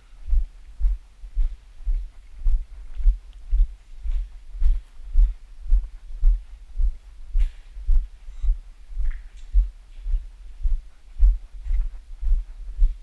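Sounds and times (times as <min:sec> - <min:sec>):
footsteps walking: 0:00.2 - 0:13.0.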